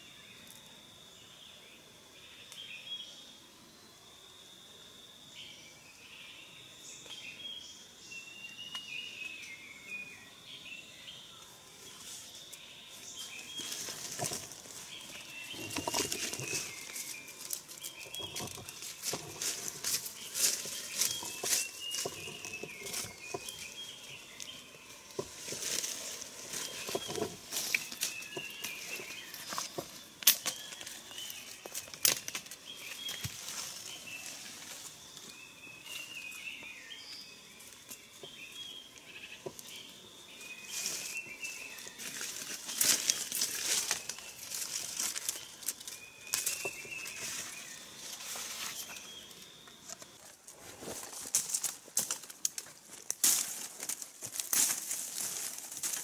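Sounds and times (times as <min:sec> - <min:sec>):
dry leaves rustling: 0:13.1 - 0:35.0, 0:40.4 - 0:49.4, 0:50.2 - 0:56.0
twigs cracking: 0:13.6 - 0:33.9, 0:42.0 - 0:47.6, 0:51.0 - 0:56.0.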